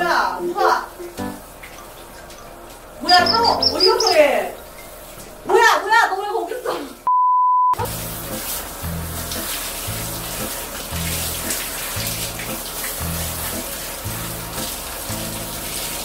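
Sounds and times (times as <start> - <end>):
shower head spraying water: 7.8 - 16.0
background music with low beat: 7.9 - 15.6.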